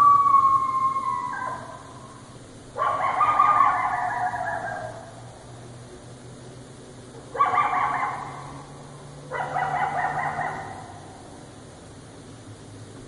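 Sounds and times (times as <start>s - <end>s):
coyote calling: 0.0s - 5.3s, 7.2s - 11.4s.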